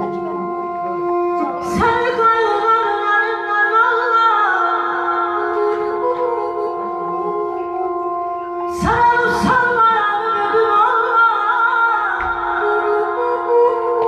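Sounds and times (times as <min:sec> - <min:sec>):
woman singing ornamented vocals: 0:08.6 - 0:14.0.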